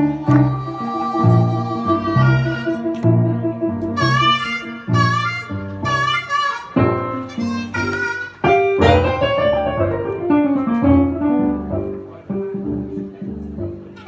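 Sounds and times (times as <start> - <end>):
amplified harmonica: 0.0 - 9.9
keyboard piano chords: 0.0 - 14.0.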